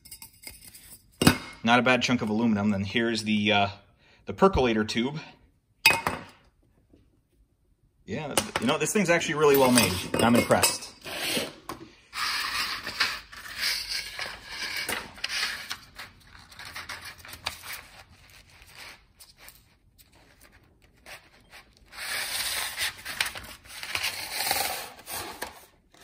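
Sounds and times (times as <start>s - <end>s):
paper filter crinkling: 15.6s - 24.0s.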